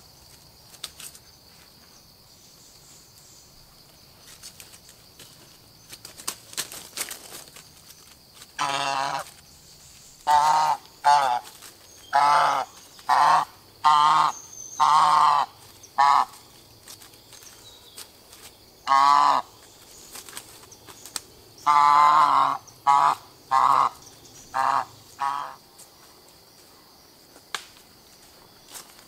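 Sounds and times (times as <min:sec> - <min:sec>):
goose honking: 0:08.6 - 0:09.3, 0:10.2 - 0:11.5, 0:12.1 - 0:16.4, 0:18.8 - 0:19.5, 0:21.6 - 0:25.6.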